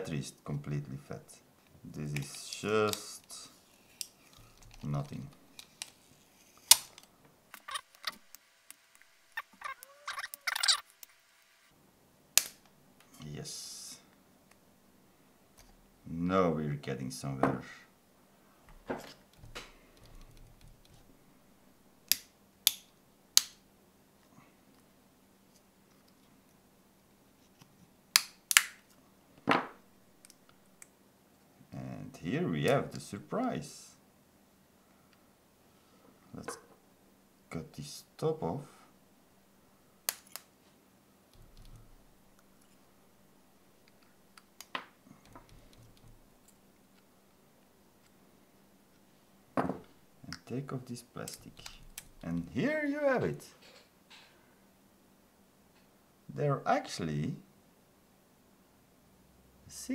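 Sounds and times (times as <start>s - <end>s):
faint handling sounds: 1.6s - 11.2s.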